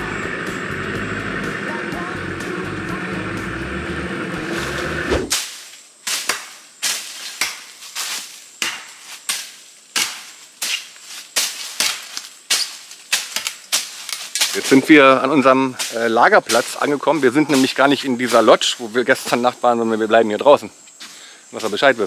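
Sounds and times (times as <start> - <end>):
boat motor droning: 0.0 - 5.3
chopping strikes on ground: 5.1 - 7.8, 8.6 - 10.8, 11.4 - 14.6.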